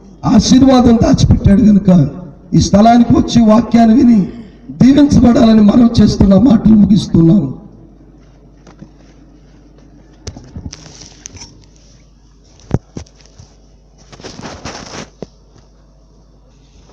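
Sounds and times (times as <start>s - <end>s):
low steady hum: 0.0s - 16.9s
rubbing crackle: 12.6s - 15.4s.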